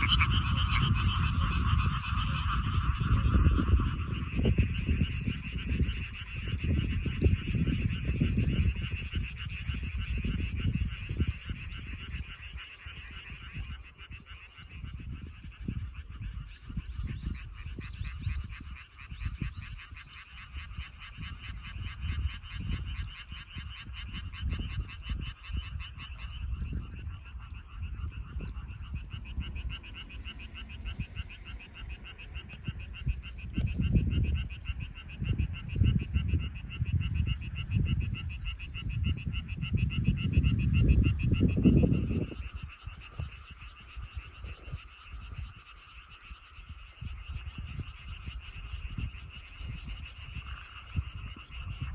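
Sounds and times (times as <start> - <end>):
frogs calling: 0.0 - 51.9
low rumbling: 24.3 - 36.2.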